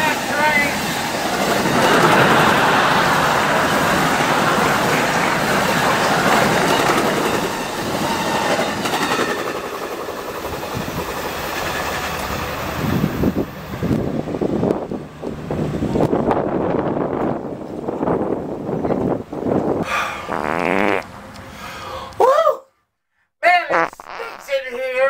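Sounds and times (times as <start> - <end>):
passenger train passing: 0.0 - 19.8.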